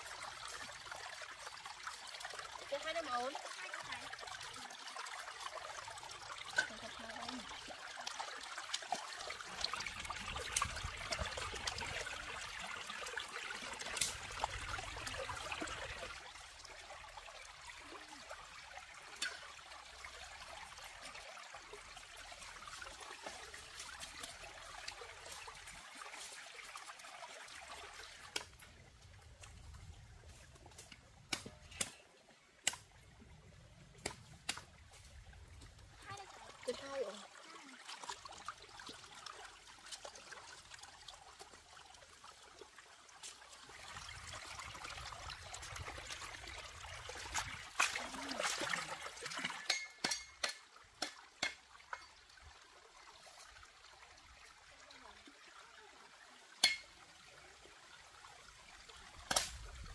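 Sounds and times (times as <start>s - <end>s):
stream trickling over rocks: 0.0s - 59.9s
water splashing: 43.2s - 51.7s.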